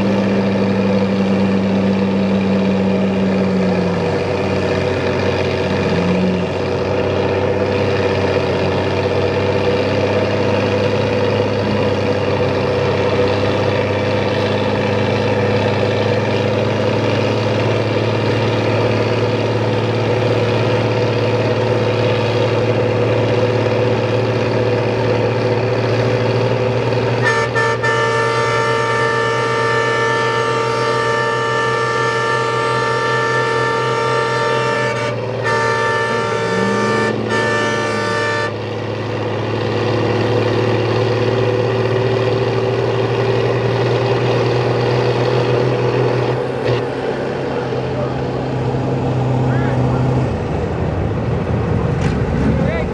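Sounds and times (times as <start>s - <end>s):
truck engines running hard: 0.0s - 52.9s
vehicle horn: 27.2s - 38.8s.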